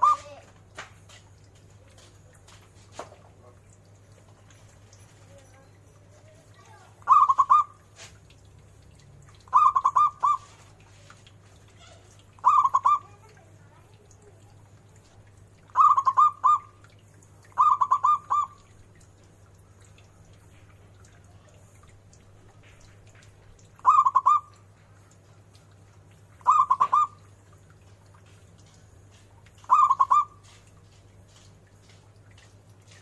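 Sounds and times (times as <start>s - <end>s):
dove cooing: 0.0s - 0.4s, 7.0s - 8.1s, 9.5s - 10.7s, 11.8s - 13.4s, 15.7s - 16.8s, 17.4s - 18.7s, 23.8s - 24.6s, 26.4s - 27.3s, 29.6s - 30.6s.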